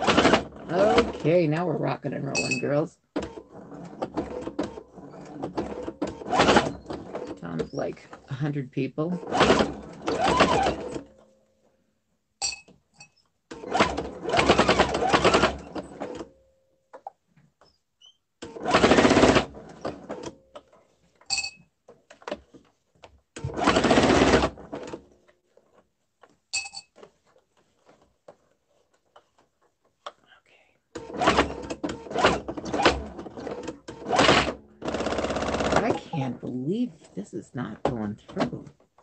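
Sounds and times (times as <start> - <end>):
electric sewing machine stitching: 0.0 - 11.1, 13.5 - 16.3, 18.4 - 20.4, 23.4 - 25.2, 30.9 - 36.8.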